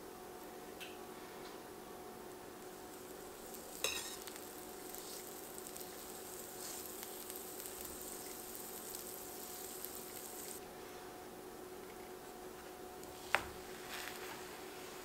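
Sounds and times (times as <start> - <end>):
butter sizzling in frying pan: 2.4 - 10.6.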